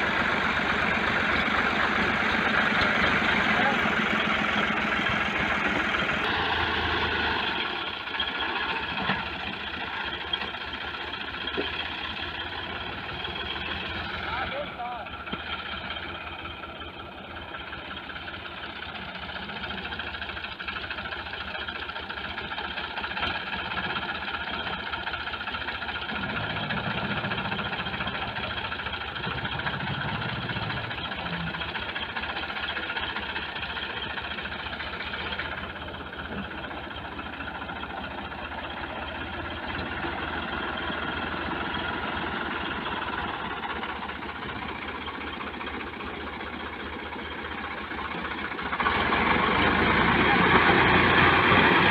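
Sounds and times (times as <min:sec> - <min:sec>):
tractor diesel engine under load: 0:00.0 - 0:51.9.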